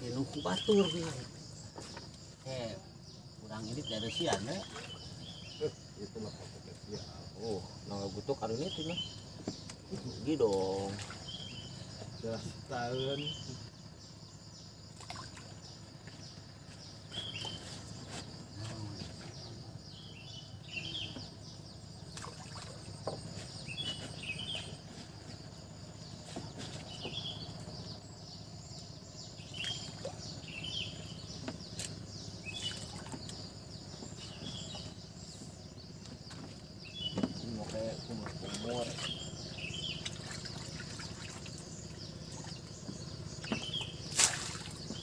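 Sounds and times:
bird chirping: 0.0s - 45.0s
water lapping: 8.6s - 12.7s, 14.9s - 18.1s, 20.9s - 25.5s, 29.3s - 35.0s, 36.2s - 45.0s.

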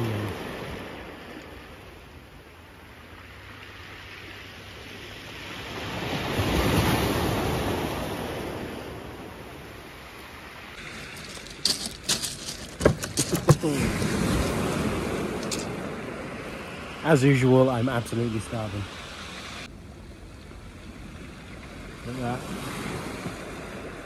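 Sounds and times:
light wind: 0.0s - 24.0s
surf breaking on shingle: 10.8s - 15.8s.

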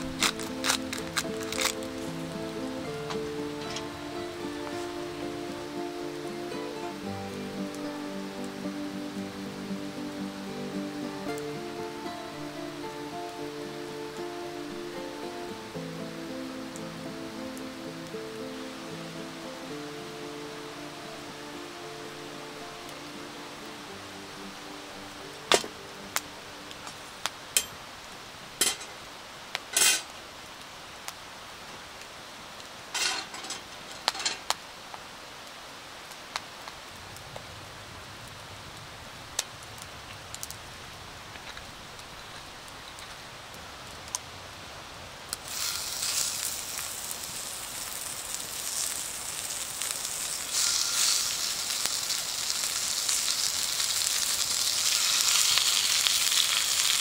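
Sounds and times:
food sizzling in hot oil: 0.0s - 7.8s, 45.3s - 57.0s.

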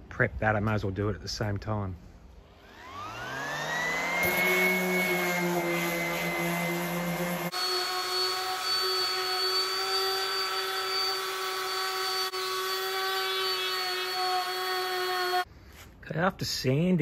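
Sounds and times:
orbital sander whining: 2.4s - 15.5s.

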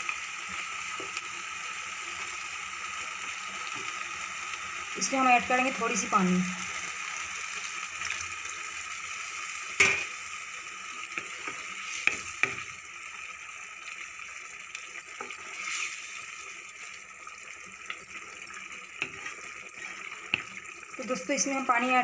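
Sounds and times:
water pouring into a pan: 0.0s - 22.0s
wooden spatula stirring: 11.1s - 12.8s, 15.0s - 17.0s, 17.7s - 21.0s.

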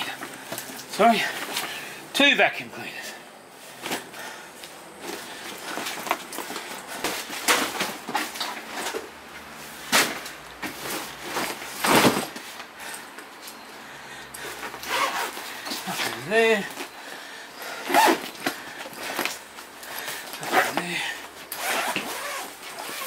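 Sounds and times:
rustling: 3.0s - 13.6s.

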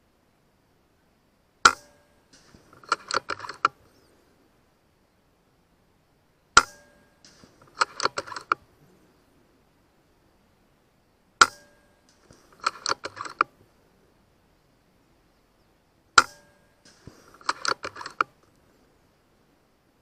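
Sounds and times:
rifle shots: 1.6s - 3.7s, 6.6s - 8.6s, 16.2s - 18.2s
sharp metallic clicks: 1.6s - 3.9s, 6.6s - 8.7s, 11.4s - 13.6s, 16.2s - 18.6s
short ringing: 6.6s - 8.5s.

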